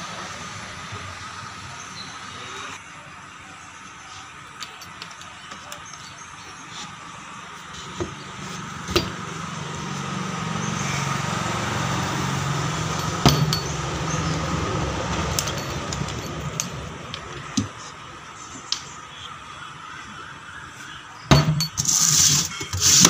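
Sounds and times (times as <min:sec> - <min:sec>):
keys rattling in lock: 0:15.1 - 0:17.3.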